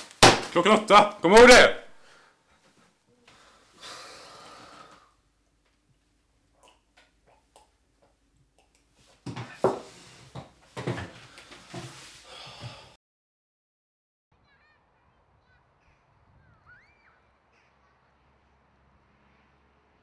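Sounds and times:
person breathing heavily: 1.9s - 2.5s, 3.3s - 5.2s, 11.1s - 13.0s.

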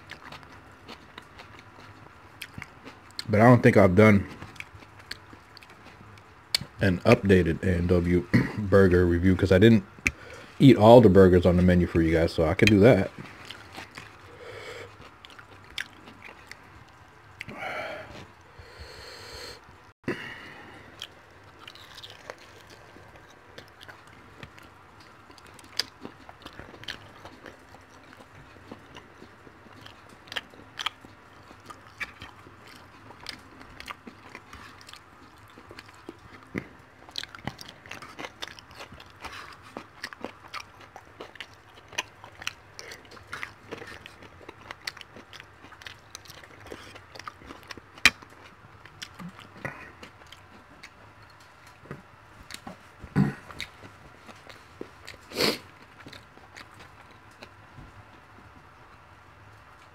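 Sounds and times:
person chewing food: 0.0s - 3.6s, 4.2s - 59.9s.

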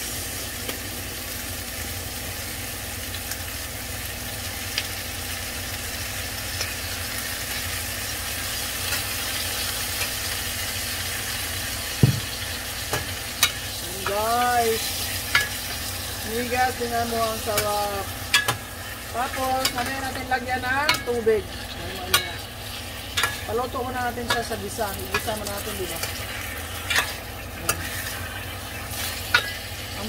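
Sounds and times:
fish sizzling in a pan: 0.0s - 30.0s
metal spoon knocking a pan: 12.0s - 13.6s.

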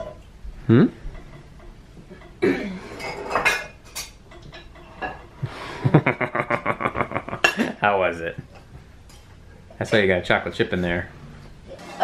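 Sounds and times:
utensils clinking on glass bowl: 1.1s - 5.3s.

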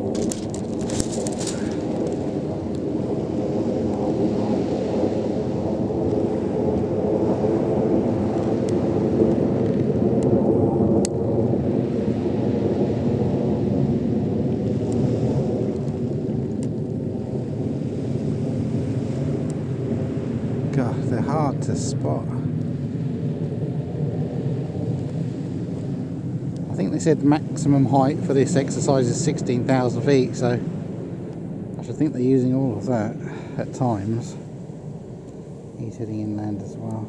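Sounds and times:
distant jet engines rumbling: 0.0s - 37.0s.

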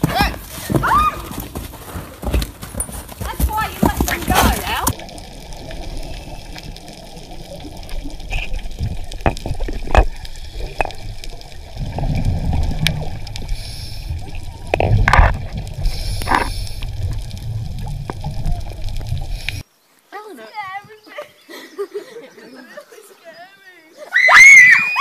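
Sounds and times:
loud bubbling rushes: 4.4s - 19.6s
underwater bubbling: 4.6s - 19.6s
low rumble: 4.9s - 19.6s
sharp clicks and knocks: 8.3s - 11.1s.

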